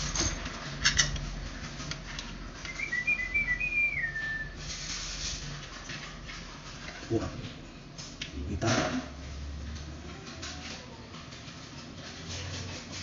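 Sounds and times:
person whistling: 2.7s - 4.6s.

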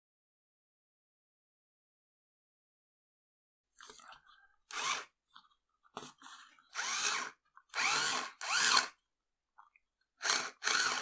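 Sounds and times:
small electric motor spinning up: 4.7s - 5.1s, 6.8s - 9.0s, 10.2s - 11.0s.

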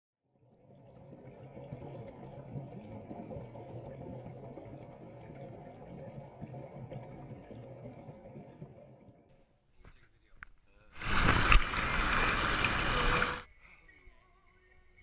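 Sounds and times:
muffled underwater bubbling: 0.6s - 9.2s.

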